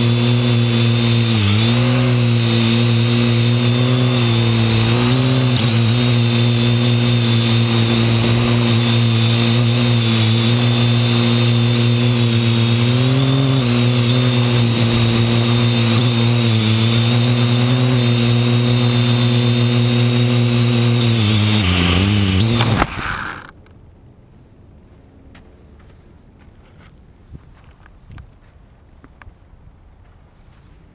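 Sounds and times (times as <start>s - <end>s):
quadcopter motors buzzing: 0.0s - 23.5s.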